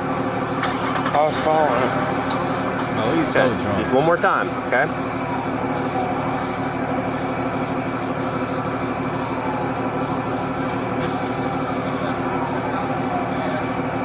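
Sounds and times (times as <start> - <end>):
mechanical drone with whine: 0.0 - 14.0.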